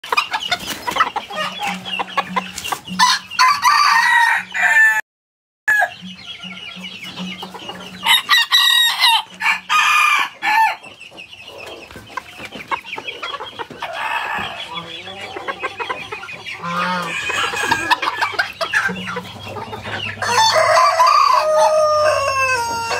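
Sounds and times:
chickens clucking: 0.0 - 5.0, 5.7 - 22.9
young roosters crowing: 2.9 - 5.0, 5.7 - 6.0, 8.0 - 10.8, 13.8 - 15.5, 16.6 - 18.4, 20.1 - 22.9.

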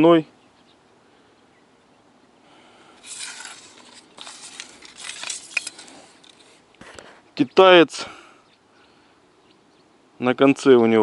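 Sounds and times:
fishing rod scraping and rubbing: 3.0 - 7.1.

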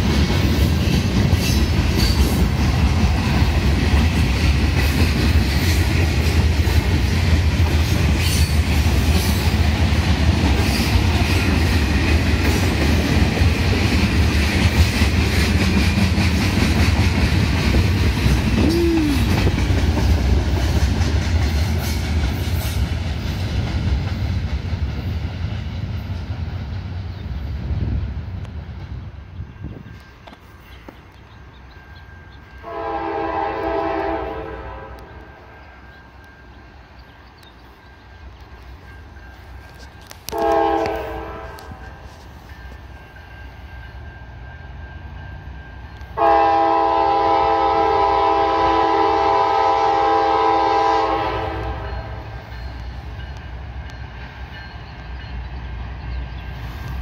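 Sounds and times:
locomotive air horn blasts: 32.6 - 35.2, 40.3 - 42.0, 46.2 - 52.2.

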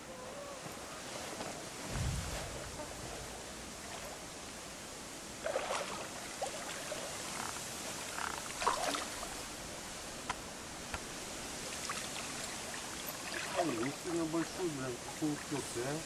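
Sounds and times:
water lapping against a boat: 1.6 - 9.9, 11.0 - 16.0
short splashes: 5.4 - 7.3, 8.4 - 9.4, 11.6 - 15.6.

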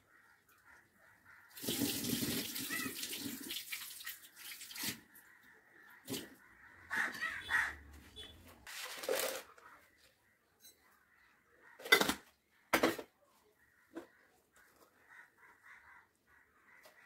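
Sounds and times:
crows cawing: 0.0 - 1.6, 2.6 - 3.1, 5.0 - 8.0, 13.6 - 17.0.

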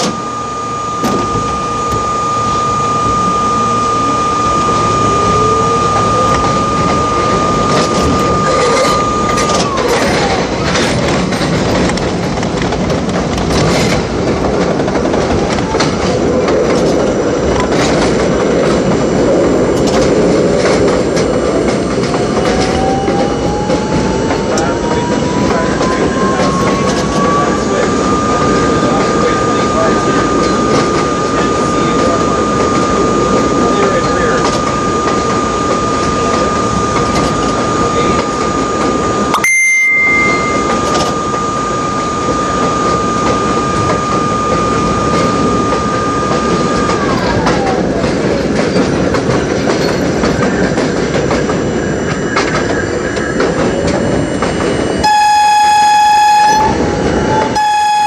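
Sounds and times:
subway train motor whine: 0.0 - 58.0
train wheels clacking over rail joints: 7.6 - 39.4, 43.0 - 54.9.

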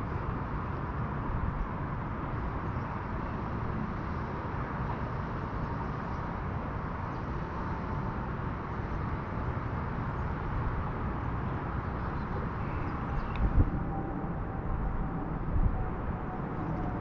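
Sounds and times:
wind buffeting microphone: 10.6 - 17.0.

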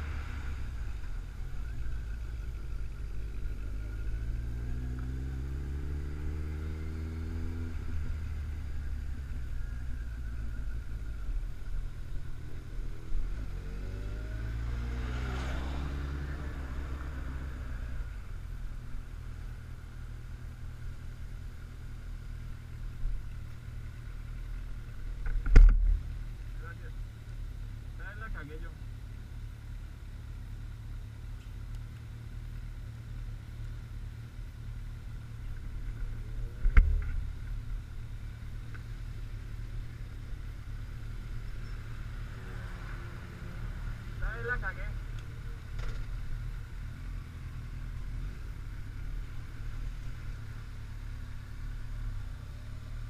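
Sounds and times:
motorcycle engine revving: 0.0 - 23.1, 33.9 - 53.0.

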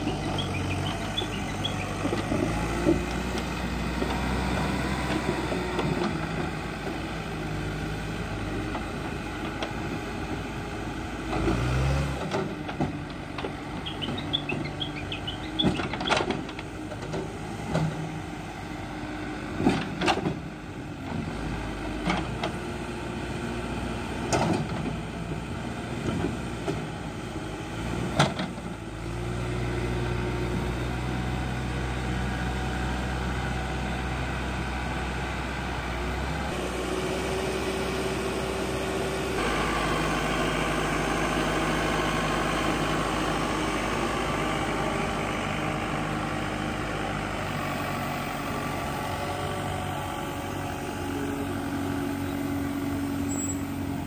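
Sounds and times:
loader bucket knocks and clanks: 0.0 - 7.1, 12.2 - 18.2, 19.5 - 20.5, 24.2 - 25.2, 28.1 - 28.7
diesel engine running: 0.0 - 54.0.

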